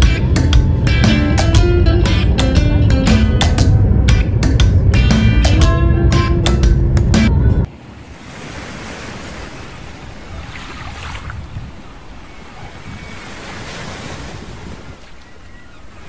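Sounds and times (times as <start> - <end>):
wind buffeting microphone: 0.0 - 16.0
surf washing onto beach: 7.7 - 16.0.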